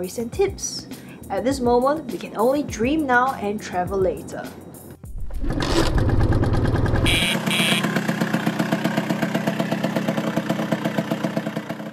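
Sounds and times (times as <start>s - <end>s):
scooter engine idling: 5.5s - 11.9s
short high beeps: 7.0s - 7.9s.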